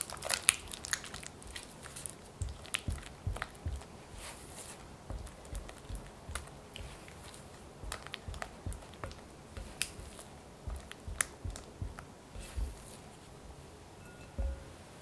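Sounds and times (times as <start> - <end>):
spatula beating frosting in bowl: 1.9 - 13.2.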